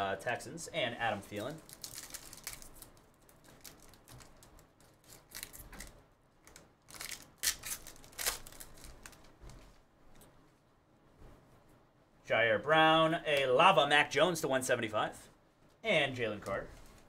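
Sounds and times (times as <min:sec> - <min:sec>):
foil wrapper tearing and crinkling: 0:01.6 - 0:05.9, 0:06.5 - 0:09.2.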